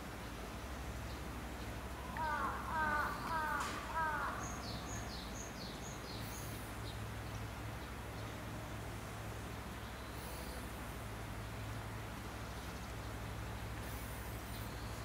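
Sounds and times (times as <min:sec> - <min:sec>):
bird calls falling in pitch: 0:02.0 - 0:04.7.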